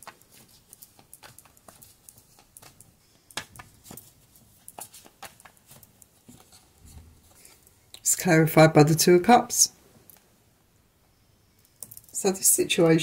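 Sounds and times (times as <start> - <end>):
cards shuffling: 0.0 - 7.6.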